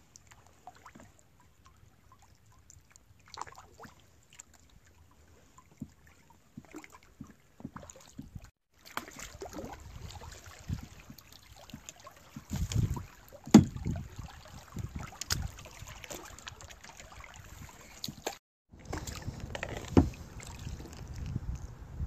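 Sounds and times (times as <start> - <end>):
water sloshing: 0.0 - 21.8
kayak paddling: 0.0 - 22.0
wind rumble on microphone: 9.8 - 11.2, 12.4 - 15.8, 18.7 - 22.0
sharp knocks: 13.5 - 13.8.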